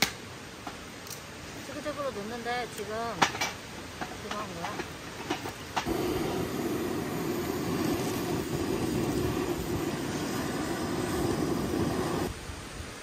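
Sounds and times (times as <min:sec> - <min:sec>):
gas torch hissing: 0:05.5 - 0:12.3.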